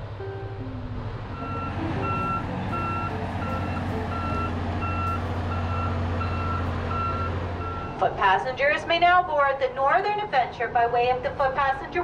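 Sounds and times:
engine running: 0:00.0 - 0:12.0
reversing alarm beeping: 0:01.3 - 0:08.0.

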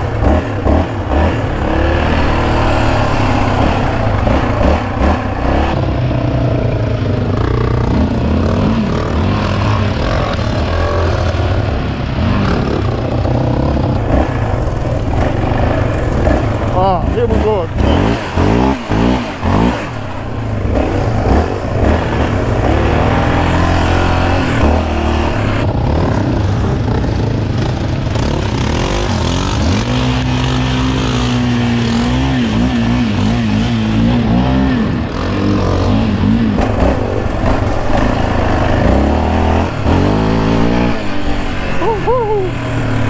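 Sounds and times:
quad engine revving: 0:00.0 - 0:43.0.

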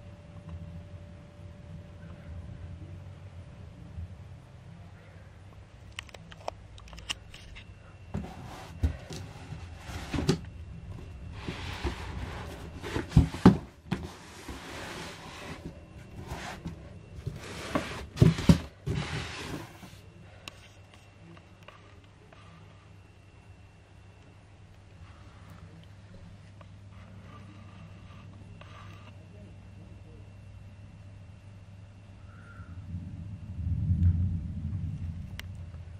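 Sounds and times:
cardboard box scraping and rustling: 0:08.2 - 0:20.0.

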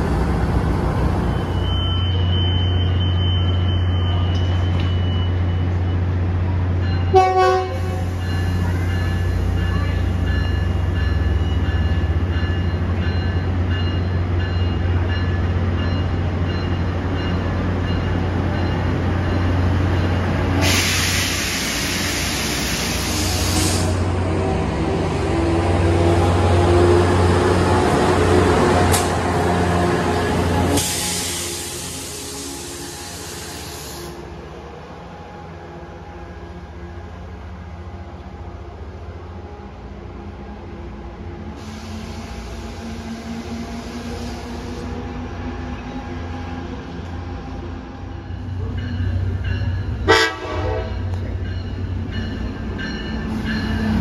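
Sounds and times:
diesel locomotive humming: 0:00.0 - 0:54.0
loud rail noise: 0:00.0 - 0:54.0
train horn toot: 0:07.1 - 0:08.2, 0:50.0 - 0:51.2
sharp hiss: 0:20.6 - 0:24.0, 0:30.7 - 0:34.2.

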